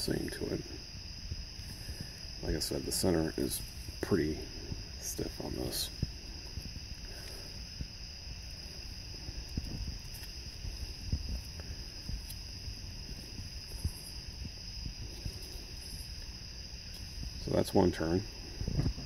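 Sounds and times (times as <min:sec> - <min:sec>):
crickets chirping: 0:00.0 - 0:19.0.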